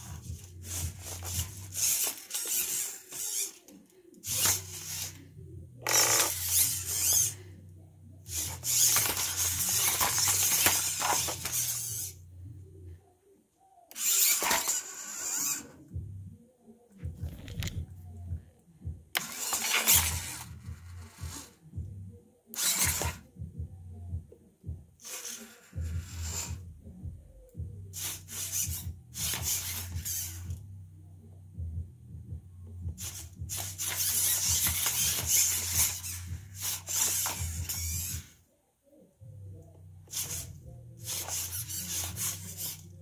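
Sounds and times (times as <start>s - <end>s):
servo motors whining and grinding: 0.0s - 7.5s, 8.2s - 12.2s, 13.9s - 15.9s, 19.2s - 21.6s, 22.5s - 23.3s, 25.0s - 26.6s, 28.0s - 30.6s, 33.0s - 38.4s, 40.1s - 43.0s
low steady hum: 3.8s - 13.8s, 15.6s - 19.2s, 23.1s - 25.0s, 29.8s - 43.0s.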